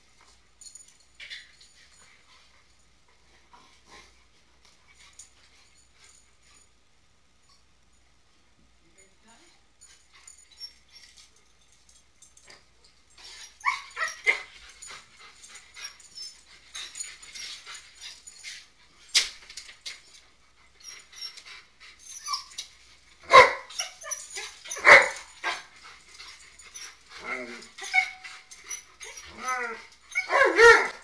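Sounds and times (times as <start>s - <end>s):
dogs yipping and whining: 0.6s - 2.5s, 9.8s - 31.0s
dog barks: 23.3s - 23.7s.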